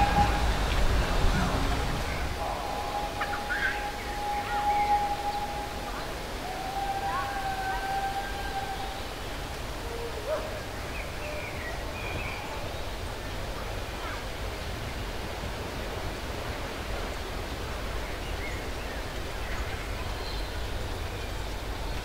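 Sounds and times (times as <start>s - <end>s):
steam locomotive hissing: 0.0s - 7.7s.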